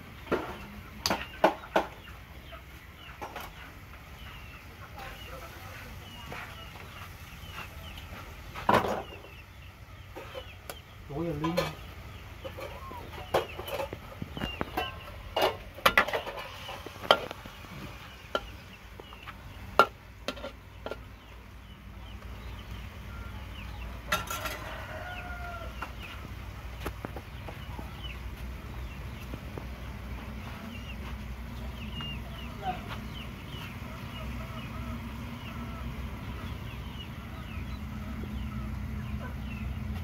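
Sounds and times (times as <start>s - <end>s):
poultry calling: 8.9s - 15.3s
metal spatula scraping a wok: 14.7s - 18.8s, 19.6s - 21.2s, 24.1s - 24.7s.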